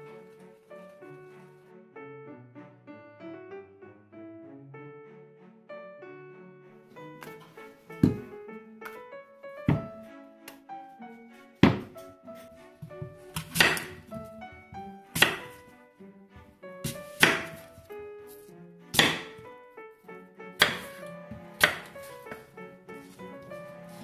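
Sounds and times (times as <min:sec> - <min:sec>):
light background music: 0:00.0 - 0:24.0
knife knocking on wooden board: 0:08.0 - 0:08.3, 0:09.7 - 0:10.0, 0:11.6 - 0:12.0
knife cutting apples: 0:13.2 - 0:14.3, 0:15.2 - 0:15.6, 0:16.8 - 0:19.4, 0:20.6 - 0:23.2.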